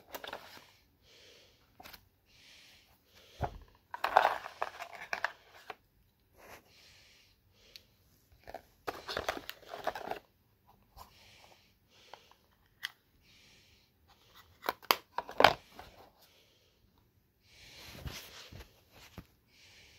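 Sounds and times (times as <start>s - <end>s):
packaging rustling and crinkling: 8.4s - 10.3s.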